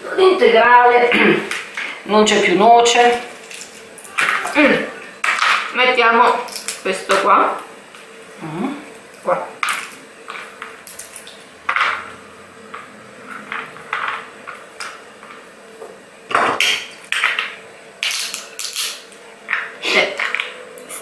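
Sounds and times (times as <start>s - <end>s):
nutcracker cracking walnuts: 18.0s - 20.4s.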